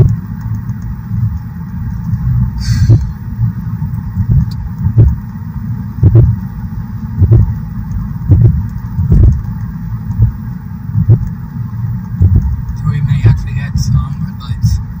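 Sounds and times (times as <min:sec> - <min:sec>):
low thumps: 0:00.0 - 0:14.0
car road rumble inside cabin: 0:00.0 - 0:15.0
brief hiss: 0:02.6 - 0:03.1.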